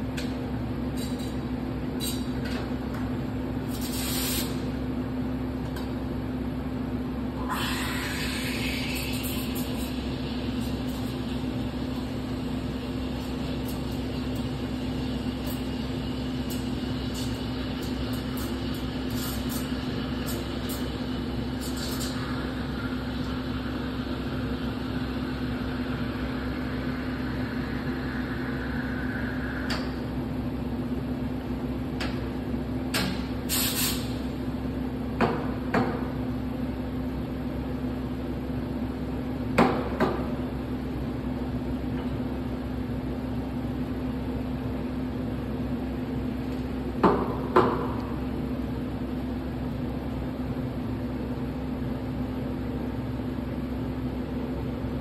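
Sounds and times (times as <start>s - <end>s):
espresso machine humming: 7.3s - 31.8s
steam wand hissing: 7.4s - 30.0s.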